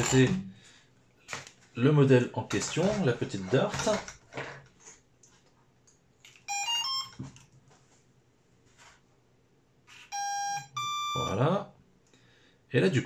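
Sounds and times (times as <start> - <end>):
long steady beep: 6.5 - 7.2, 10.0 - 11.4
pitched electronic beeps: 10.0 - 11.4.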